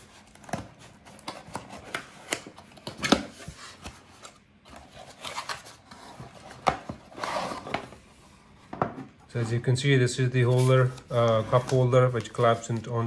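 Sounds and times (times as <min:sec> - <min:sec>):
cardboard rubbing and scraping: 0:04.8 - 0:07.9.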